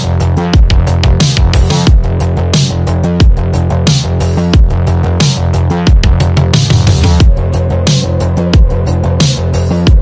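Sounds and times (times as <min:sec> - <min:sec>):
loud electronic music: 0:00.0 - 0:10.0
sliding bass notes: 0:00.0 - 0:10.0.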